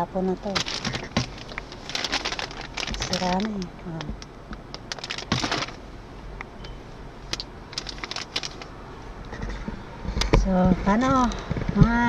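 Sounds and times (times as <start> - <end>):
handling rustle: 0.4 - 5.8, 7.2 - 9.7
small clicks and crackles: 0.5 - 5.8, 7.3 - 8.7.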